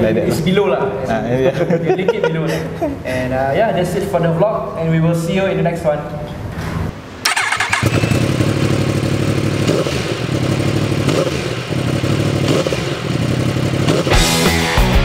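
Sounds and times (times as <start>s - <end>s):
motorcycle engine idling: 7.3s - 14.4s
music: 14.1s - 15.0s.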